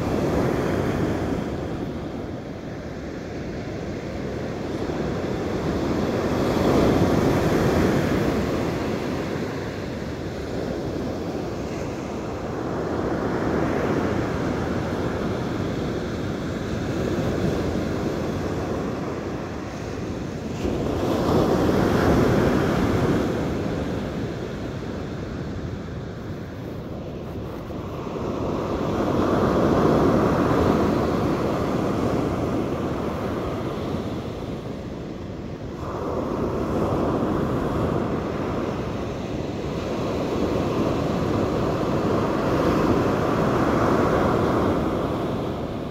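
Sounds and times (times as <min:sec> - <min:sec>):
ocean surf breaking: 0:00.0 - 0:45.9
wind buffeting microphone: 0:00.0 - 0:45.9.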